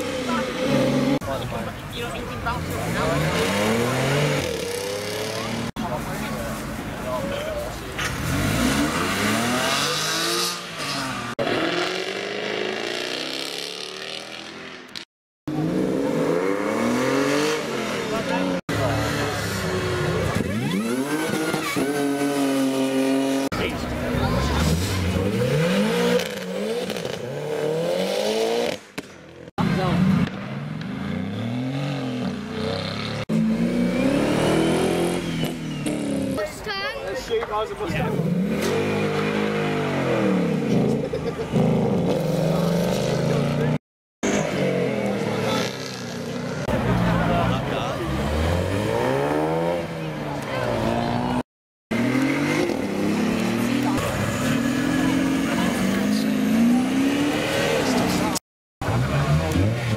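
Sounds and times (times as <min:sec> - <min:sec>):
sports cars accelerating: 0:08.1 - 0:14.9, 0:29.6 - 0:36.4, 0:38.0 - 0:59.9.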